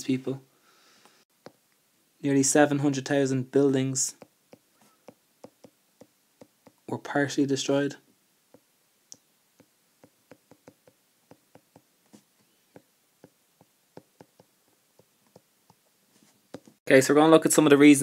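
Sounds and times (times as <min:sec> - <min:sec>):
stylus tapping on glass screen: 0:04.2 - 0:06.9, 0:09.6 - 0:15.8.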